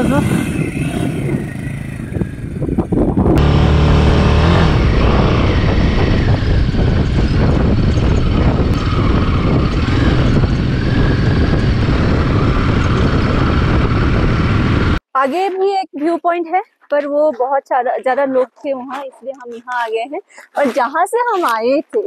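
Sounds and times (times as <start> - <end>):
motorcycle engine pulling away: 0.0 - 15.0
wind noise: 0.0 - 15.0
road noise: 0.0 - 15.4.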